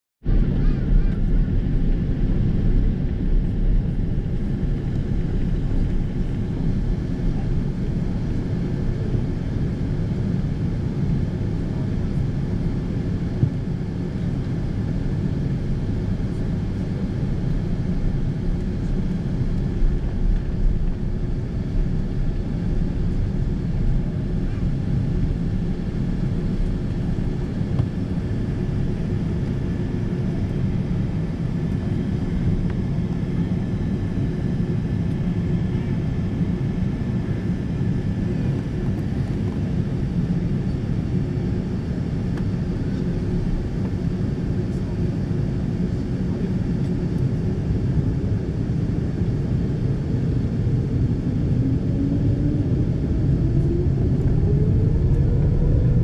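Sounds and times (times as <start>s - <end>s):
jet engines at low power: 0.2s - 56.0s
low cabin rumble: 0.3s - 36.3s.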